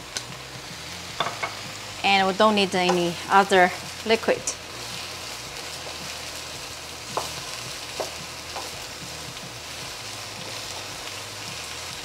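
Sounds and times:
vegetables sizzling in oil: 0.0s - 12.0s
spatula scraping and knocking pan: 1.2s - 1.6s.

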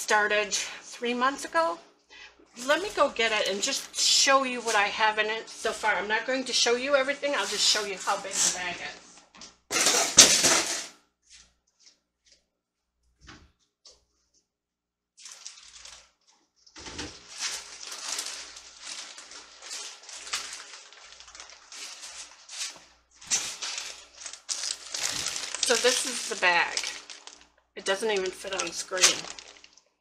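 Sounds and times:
bag rustling: 17.1s - 29.8s.

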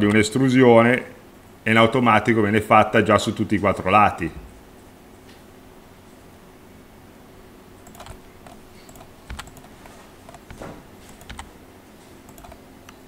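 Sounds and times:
faint steady hum: 0.0s - 13.0s
keyboard and mouse clicks: 7.8s - 11.5s, 12.3s - 13.0s.

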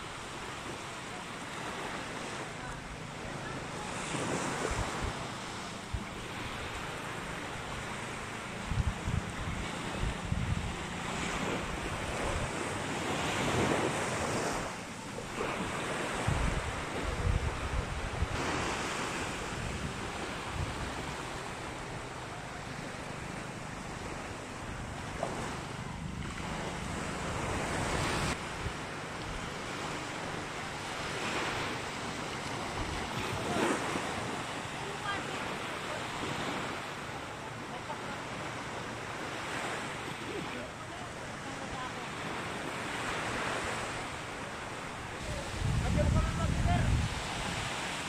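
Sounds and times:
small waves on sandy beach: 0.0s - 48.0s
wind buffeting microphone: 3.8s - 14.9s, 15.5s - 34.6s, 44.8s - 48.0s.

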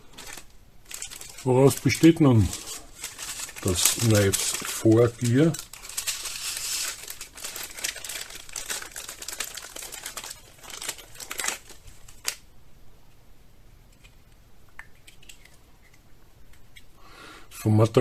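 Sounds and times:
plastic bag crinkling: 0.0s - 12.4s.

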